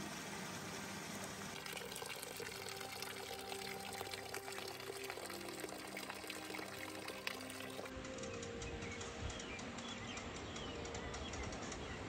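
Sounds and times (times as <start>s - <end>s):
stream splashing over rocks: 0.0s - 7.9s
soft background music: 1.5s - 12.0s.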